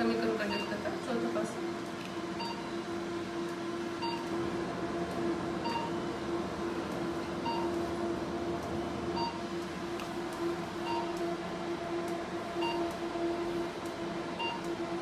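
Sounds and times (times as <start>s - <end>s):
steady machine hum: 0.0s - 15.0s
machine short beeps: 0.5s - 0.8s, 2.4s - 2.8s, 5.6s - 5.9s, 7.4s - 7.7s, 10.8s - 11.1s, 12.6s - 12.9s, 14.4s - 14.7s.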